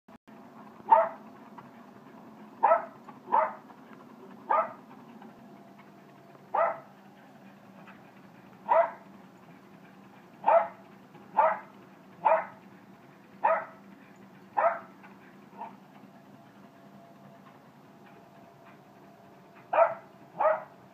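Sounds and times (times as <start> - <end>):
treadmill humming: 0.3 - 20.9
dog barking: 0.9 - 1.2, 2.6 - 3.6, 4.5 - 4.8, 6.5 - 6.9, 8.6 - 9.0, 10.4 - 10.8, 11.4 - 12.6, 13.4 - 13.8, 14.6 - 14.9, 15.6 - 15.8, 19.7 - 20.8.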